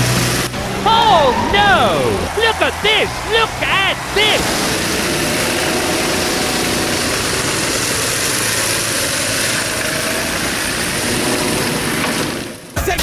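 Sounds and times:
go-kart engine running: 0.0s - 1.5s, 4.4s - 12.8s.

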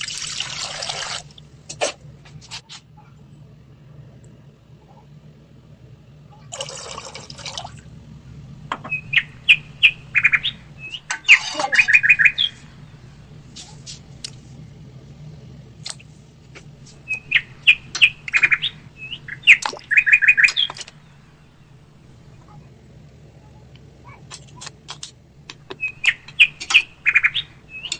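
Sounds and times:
low steady hum: 0.0s - 27.9s
bird chirping and trilling: 8.8s - 13.1s, 17.0s - 22.6s, 25.8s - 27.9s.

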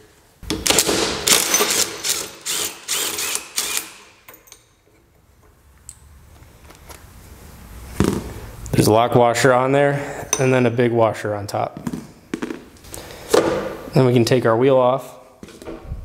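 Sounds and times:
cordless driver short bursts: 1.7s - 4.1s.

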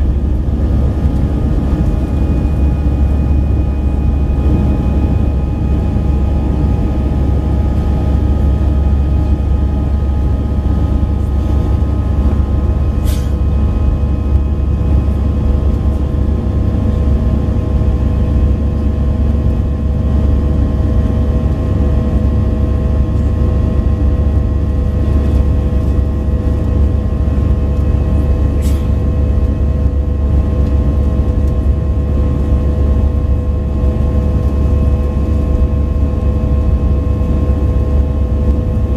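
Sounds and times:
steady whining tones: 0.0s - 21.2s
jet cabin rumble: 0.0s - 38.9s.

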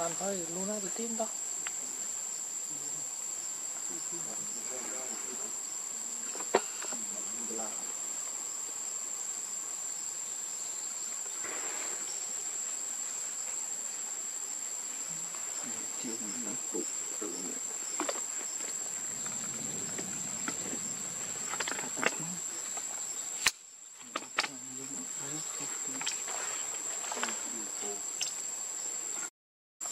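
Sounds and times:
high-pitched insect drone: 0.0s - 29.3s
sharp click: 23.4s - 24.6s.

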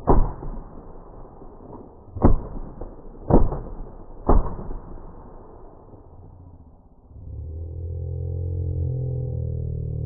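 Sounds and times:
shotgun shots: 0.0s - 5.6s.

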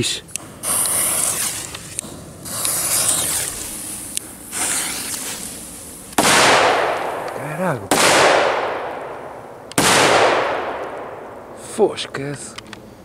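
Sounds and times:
firecracker fuse hissing: 0.4s - 7.8s.

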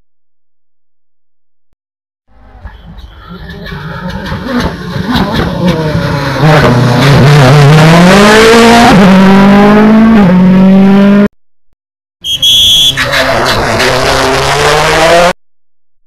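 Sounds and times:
rally car engines running hard: 2.6s - 11.3s, 12.9s - 15.4s
high-pitched whistle: 12.2s - 13.0s.

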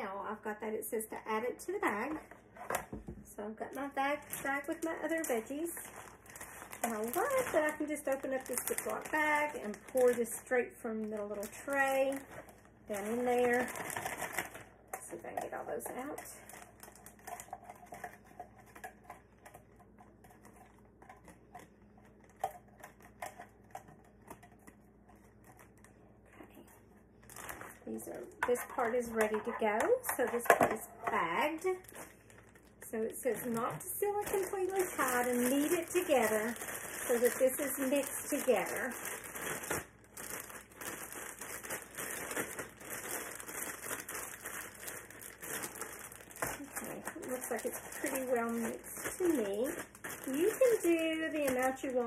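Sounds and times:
plastic bag crinkling: 1.8s - 52.0s
vegetable pieces rustling: 4.2s - 14.6s, 30.4s - 52.0s.

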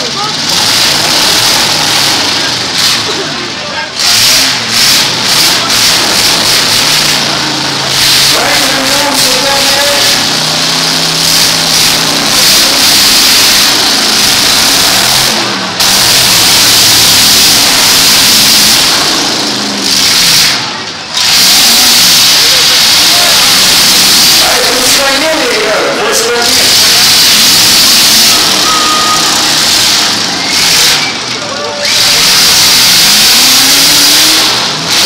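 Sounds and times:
crowd voices: 0.0s - 35.0s
truck engines revving loudly: 0.0s - 35.0s.

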